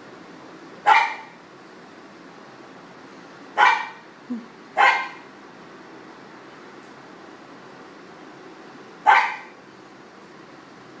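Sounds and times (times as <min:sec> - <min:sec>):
dog barking: 0:00.8 - 0:01.4, 0:03.6 - 0:04.0, 0:04.8 - 0:05.3, 0:09.0 - 0:09.6.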